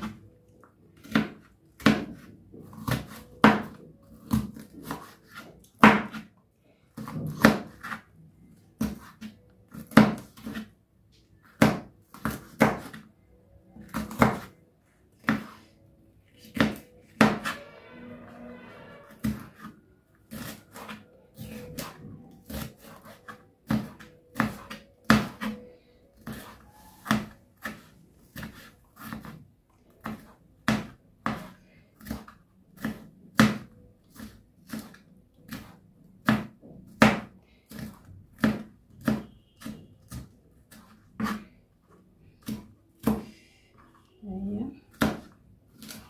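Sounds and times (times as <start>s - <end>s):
knife chopping on cutting board: 1.0s - 6.3s, 7.0s - 8.0s, 8.8s - 10.7s, 11.5s - 13.1s, 13.9s - 14.5s, 15.2s - 15.6s, 16.4s - 17.6s, 19.1s - 41.5s, 42.4s - 43.4s, 44.9s - 46.0s.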